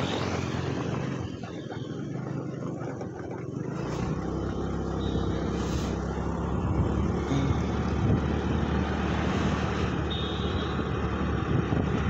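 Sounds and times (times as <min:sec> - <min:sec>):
motor scooter engine running: 0:00.0 - 0:09.2
wind: 0:00.0 - 0:12.0.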